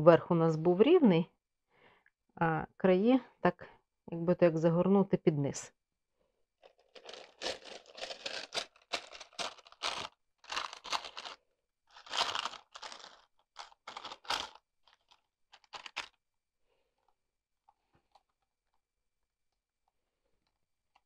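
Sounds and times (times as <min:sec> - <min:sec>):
baking paper crinkling: 0:06.6 - 0:16.2.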